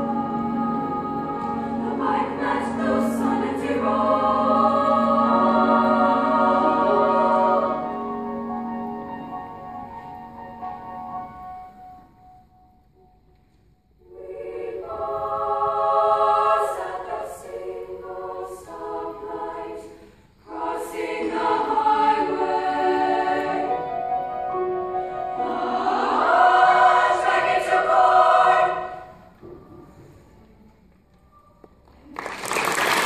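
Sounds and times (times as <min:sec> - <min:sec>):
women's choir singing: 0:00.0 - 0:09.7, 0:14.0 - 0:29.6.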